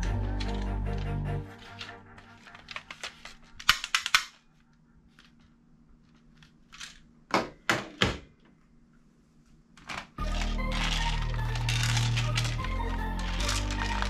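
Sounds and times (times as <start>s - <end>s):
toy gun plastic clicks: 1.7s - 4.4s, 9.9s - 14.0s.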